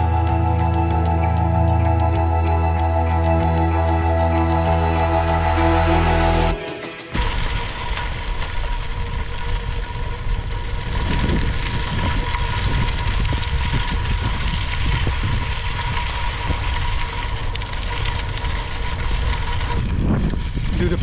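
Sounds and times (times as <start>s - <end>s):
bike tyres rolling over gravel: 7.2s - 21.0s
wind rumbling on microphone: 7.2s - 21.0s.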